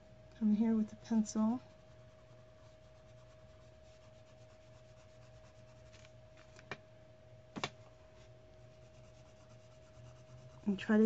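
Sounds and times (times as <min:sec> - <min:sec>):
faint hum: 0:00.0 - 0:11.0
colored pencil scratching on paper: 0:01.4 - 0:06.1, 0:08.6 - 0:11.0.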